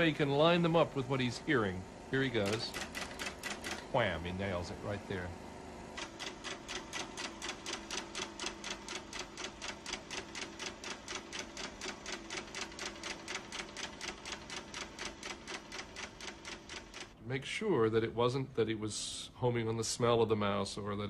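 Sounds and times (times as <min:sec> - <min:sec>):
motor hum: 0:00.0 - 0:19.2
projector mechanism clicking: 0:02.3 - 0:03.9, 0:06.0 - 0:17.2.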